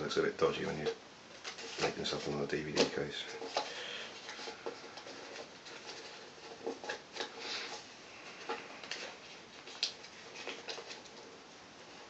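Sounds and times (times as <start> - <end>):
paper folding and crinkling: 0.4 - 12.0.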